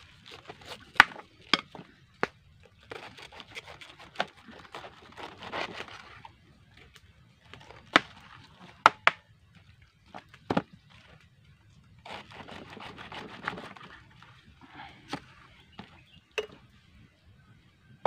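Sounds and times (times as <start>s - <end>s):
knife crunching through cabbage: 0.2s - 1.3s, 2.7s - 6.3s, 12.0s - 14.4s.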